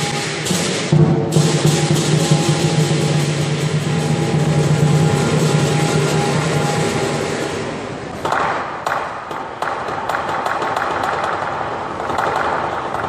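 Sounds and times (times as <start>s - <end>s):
drum: 0.0s - 8.0s
gong: 0.0s - 8.1s
clashing cymbals: 0.0s - 8.2s.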